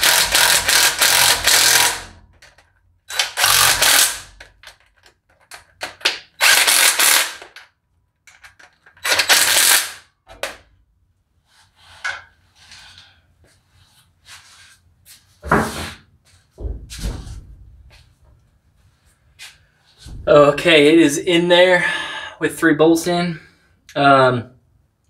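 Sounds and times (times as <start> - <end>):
impact driver hammering bolts: 0.0 - 7.7, 8.3 - 10.6.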